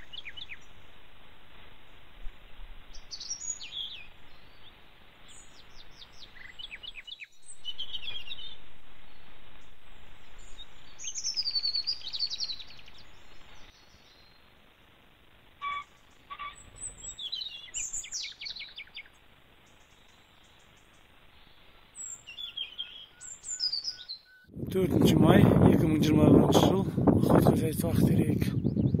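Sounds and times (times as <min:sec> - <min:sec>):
songbirds chirping and singing: 0:00.0 - 0:02.1, 0:02.8 - 0:14.5, 0:15.6 - 0:29.0
steady background hiss: 0:00.0 - 0:26.9
fast bird trill: 0:10.2 - 0:14.4.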